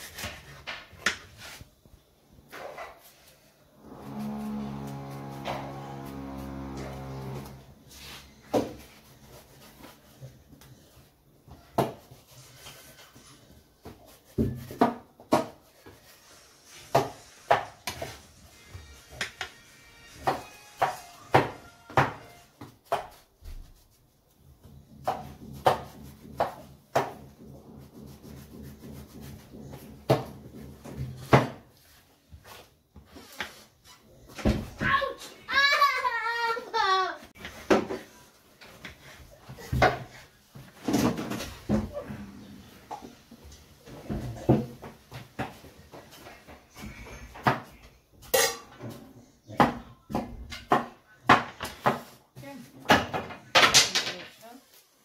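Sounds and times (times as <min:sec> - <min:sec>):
dishes and utensils clattering: 0:47.2 - 0:49.8.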